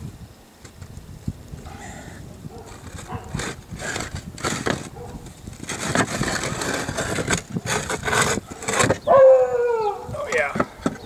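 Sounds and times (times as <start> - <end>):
roof tiles clacking and scraping: 2.6 - 9.1, 10.3 - 11.0.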